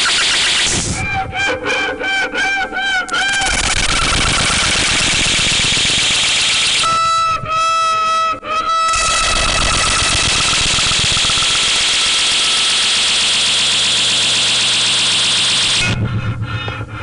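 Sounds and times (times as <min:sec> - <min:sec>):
distorted electronic noise: 0:00.0 - 0:01.2, 0:03.2 - 0:07.0, 0:08.9 - 0:16.6
rapid pulse: 0:00.0 - 0:01.4, 0:03.1 - 0:07.6, 0:08.8 - 0:17.0
low pulsing drone: 0:00.0 - 0:17.0.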